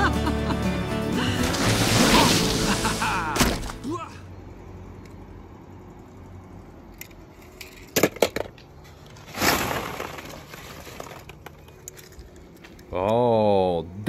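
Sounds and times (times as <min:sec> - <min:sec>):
rustling swish: 0:01.4 - 0:03.8
small hard objects clattering: 0:01.4 - 0:03.8, 0:07.6 - 0:12.7.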